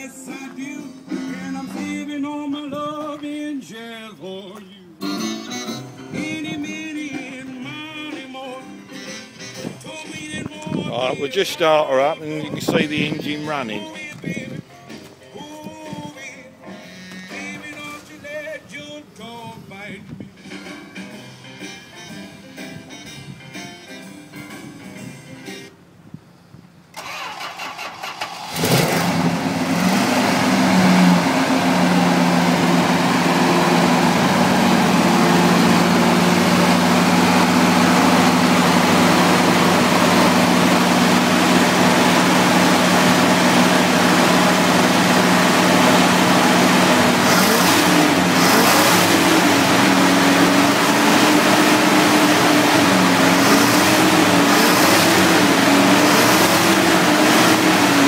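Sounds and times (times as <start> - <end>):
car engine idling: 9.9 - 14.4, 27.0 - 58.0
car engine cranking: 10.4 - 14.5, 26.9 - 58.0
engine revving with throttle blips: 26.9 - 58.0.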